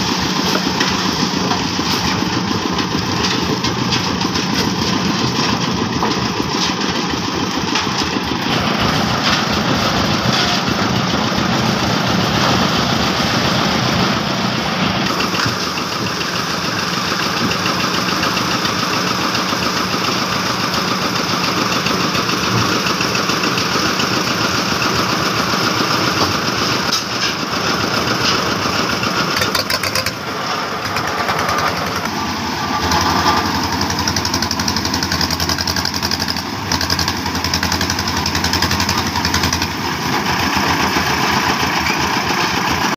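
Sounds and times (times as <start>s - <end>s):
concrete mixer engine running: 0.0s - 42.9s.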